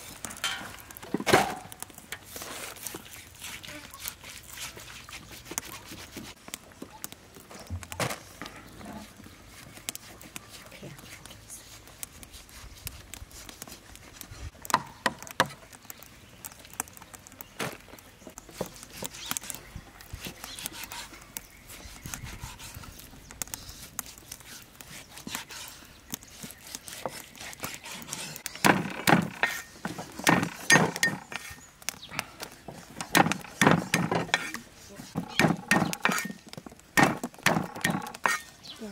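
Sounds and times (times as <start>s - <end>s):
cleaver cutting on wooden block: 2.8s - 6.4s, 20.2s - 31.6s, 33.0s - 36.4s, 37.0s - 38.5s
cleaver chops thudding: 28.5s - 31.5s, 33.0s - 34.6s, 35.2s - 36.4s, 37.0s - 38.4s.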